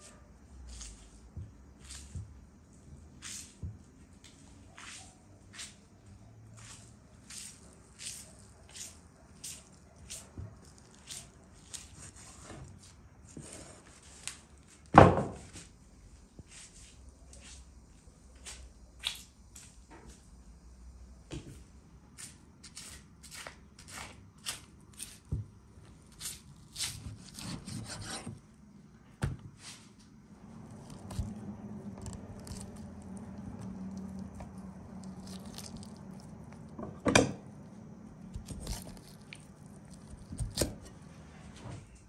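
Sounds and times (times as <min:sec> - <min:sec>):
knife scraping bones: 0:26.2 - 0:28.3, 0:30.7 - 0:36.6, 0:38.3 - 0:41.0.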